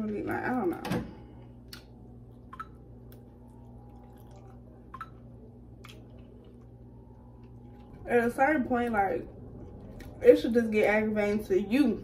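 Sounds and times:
steady low hum: 0.0s - 12.0s
person chewing: 1.6s - 8.0s, 9.5s - 10.2s.

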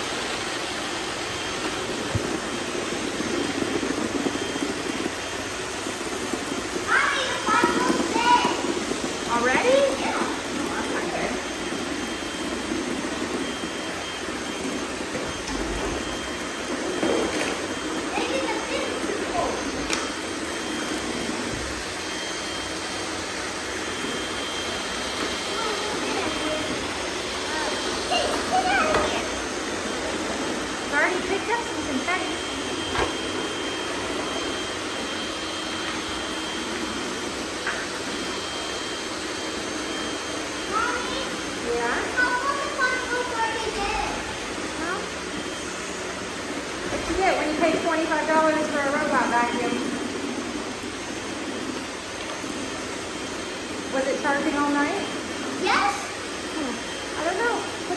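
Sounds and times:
robot vacuums whirring: 0.0s - 57.9s.

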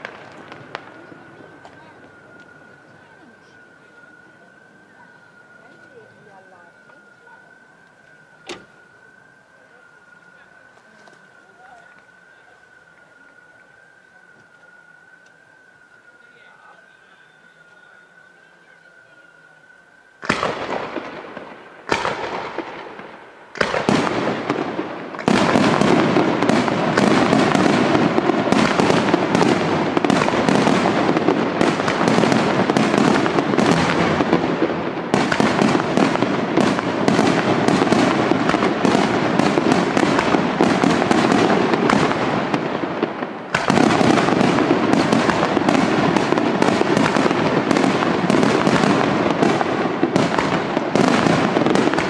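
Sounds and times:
firework shells bursting: 20.2s - 52.0s.

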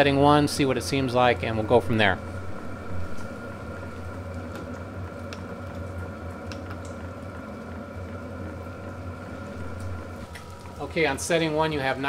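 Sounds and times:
heater burner and blower hum: 0.0s - 12.0s.

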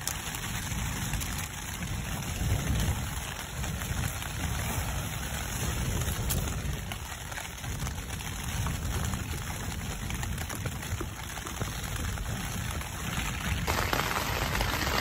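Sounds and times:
heavy rain on tent: 0.0s - 15.0s.

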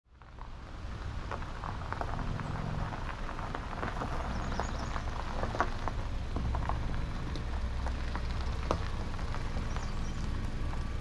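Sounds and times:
low rumble: 0.1s - 11.0s
small irregular clicks: 2.8s - 10.9s.

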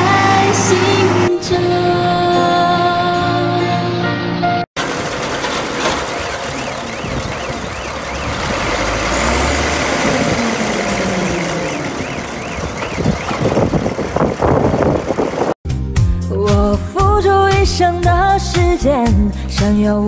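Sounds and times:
machine engine running: 4.8s - 15.6s
high rising and falling chirp: 6.2s - 14.2s.

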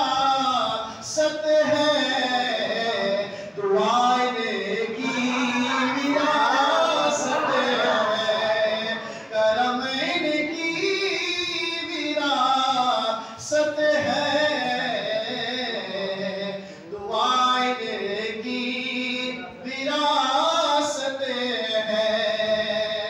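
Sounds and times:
man singing unaccompanied: 0.0s - 23.0s.

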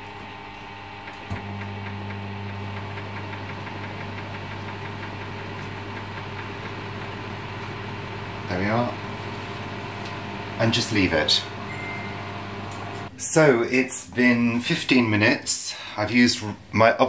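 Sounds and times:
microwave oven humming: 0.0s - 13.1s.

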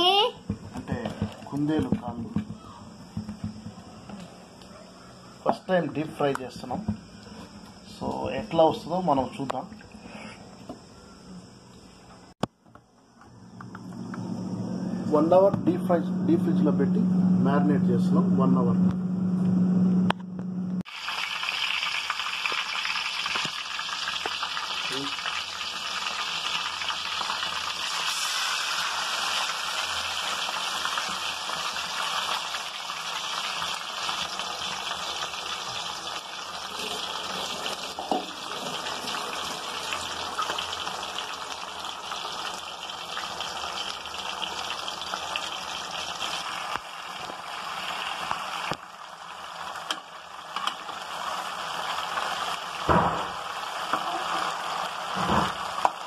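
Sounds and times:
meat deep-frying in oil: 20.8s - 56.0s.

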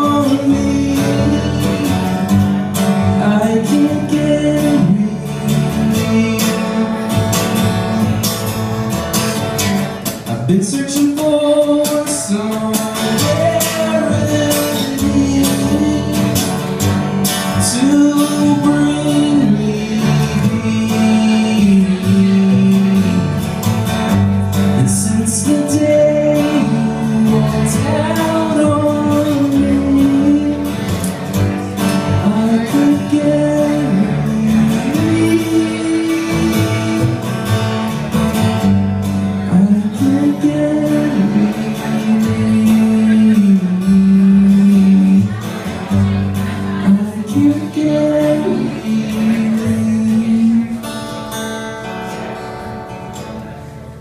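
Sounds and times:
man singing: 0.0s - 51.6s
strummed acoustic guitar: 0.0s - 54.0s
plucked double bass: 11.7s - 51.1s.

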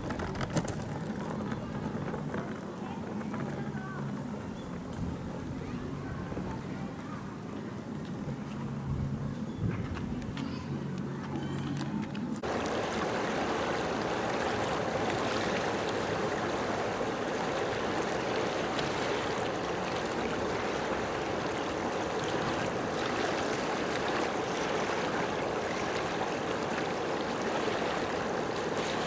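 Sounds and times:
water rushing: 12.4s - 29.0s.

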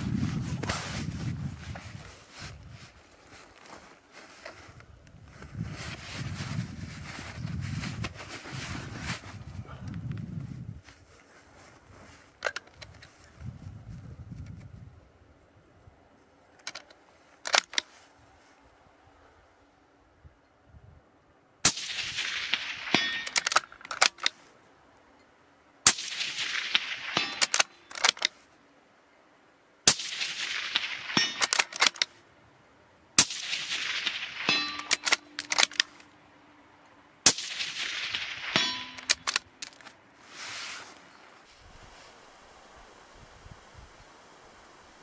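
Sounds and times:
rifle shots with echo: 21.6s - 23.7s, 25.9s - 28.2s, 29.9s - 32.0s, 33.2s - 36.0s, 37.2s - 39.7s
metallic bolt clicks and clanks: 23.0s - 24.4s, 27.2s - 28.3s, 31.1s - 32.1s, 34.4s - 36.1s, 38.5s - 39.9s.

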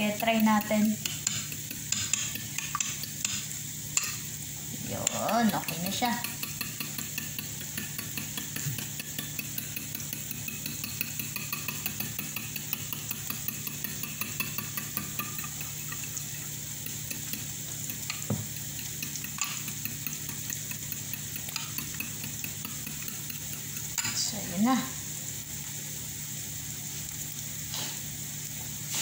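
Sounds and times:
onions sizzling in a pan: 0.0s - 29.0s
spoon clicking against glass bowl: 0.1s - 3.4s, 5.0s - 24.2s.

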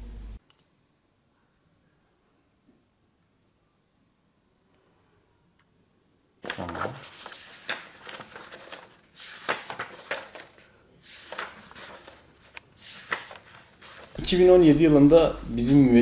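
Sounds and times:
paper pages turning: 6.4s - 14.6s.

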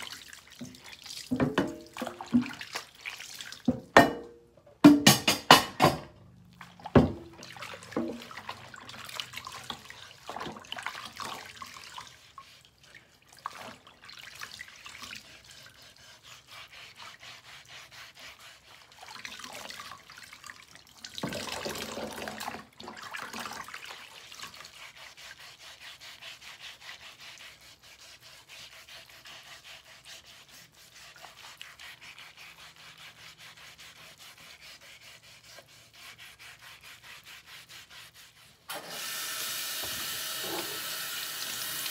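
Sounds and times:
sponge scrubbing wooden board: 0.0s - 4.0s, 6.5s - 20.4s, 21.2s - 38.7s, 39.8s - 40.9s
water splashing in metal sink: 0.0s - 15.2s, 18.9s - 24.8s
water pouring over cutting board: 18.9s - 24.8s.

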